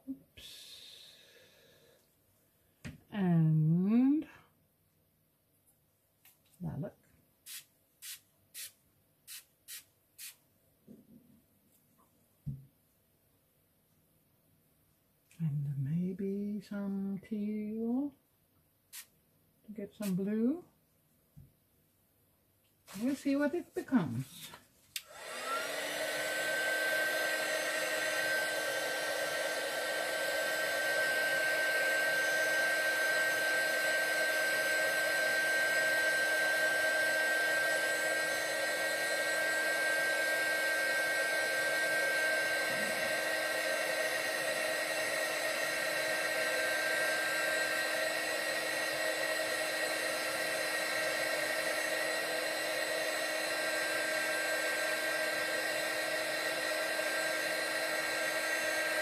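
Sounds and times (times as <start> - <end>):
heat tool fan whining: 25.0 - 59.0.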